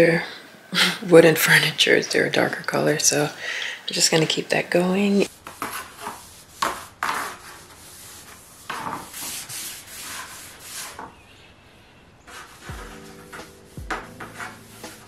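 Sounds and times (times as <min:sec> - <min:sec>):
cloth rag wiping wood: 0:05.3 - 0:11.2, 0:12.3 - 0:15.0.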